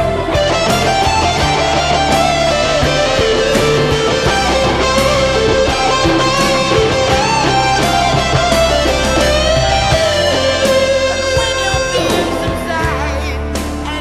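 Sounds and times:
electric guitar solo: 0:00.0 - 0:13.0
rock band backing: 0:00.0 - 0:14.0.

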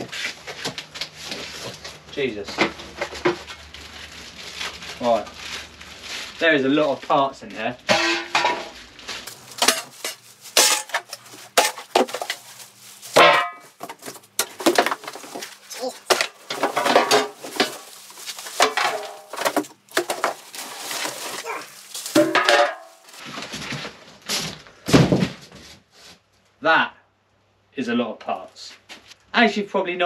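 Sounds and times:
cardboard and plastic rustling: 0:00.0 - 0:07.7, 0:08.4 - 0:26.1
loose metal parts clattering: 0:09.3 - 0:23.2.

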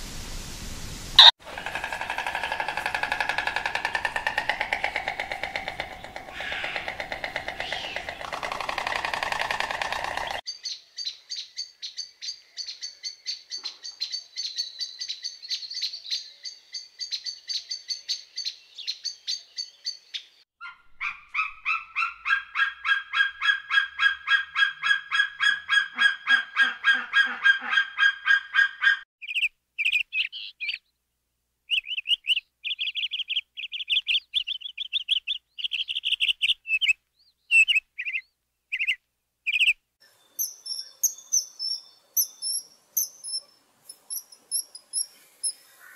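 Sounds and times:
high-pitched animal chirps: 0:40.4 - 0:45.6.

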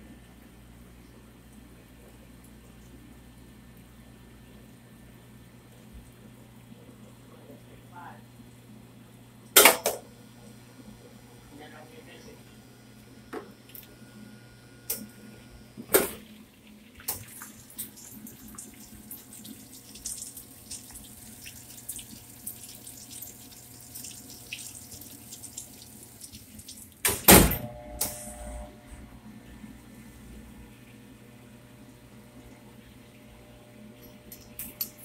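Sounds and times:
water splashing from hose into tank: 0:16.7 - 0:27.1.

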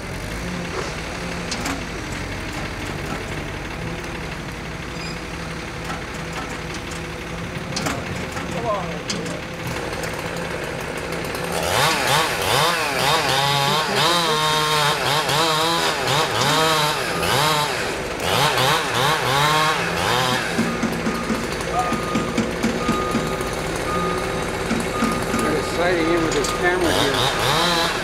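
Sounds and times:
chainsaw cutting: 0:00.0 - 0:28.0
truck engine idling: 0:00.0 - 0:28.0
reversing beeper: 0:20.7 - 0:27.2.

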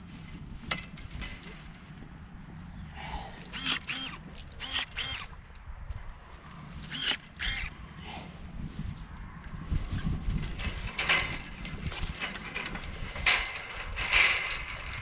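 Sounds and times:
grapevine canes rustling: 0:09.5 - 0:15.0
canes scraping and snapping: 0:10.2 - 0:15.0.

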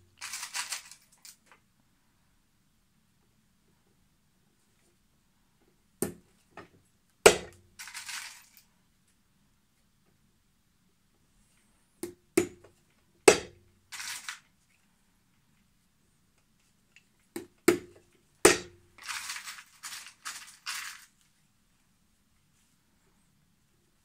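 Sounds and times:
scratchy rustling: 0:00.2 - 0:01.1, 0:13.9 - 0:14.4, 0:19.0 - 0:21.4.

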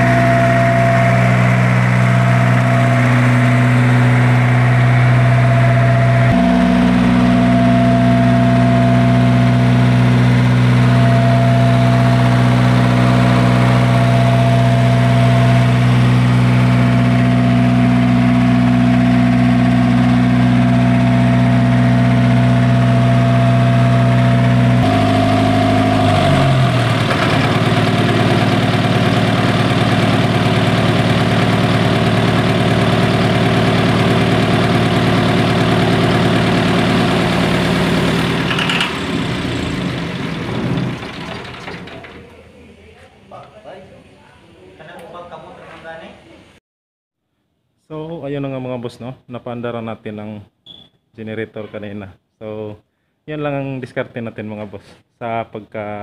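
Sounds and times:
diesel generator droning: 0:00.0 - 0:42.8.

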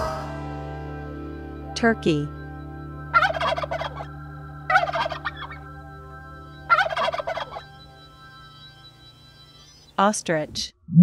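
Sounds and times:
turkey gobbling: 0:03.1 - 0:04.1, 0:04.7 - 0:05.6, 0:06.7 - 0:07.7.

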